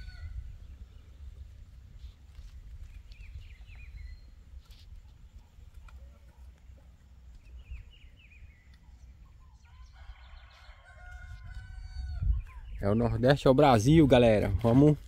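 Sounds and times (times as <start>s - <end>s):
birds chirping: 2.8s - 15.0s
rooster crowing: 9.6s - 12.3s.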